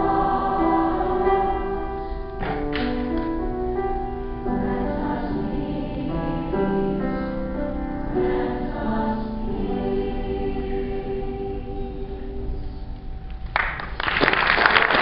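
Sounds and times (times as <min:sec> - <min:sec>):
mixed choir singing: 0:00.0 - 0:02.0, 0:04.4 - 0:07.4, 0:08.0 - 0:12.6.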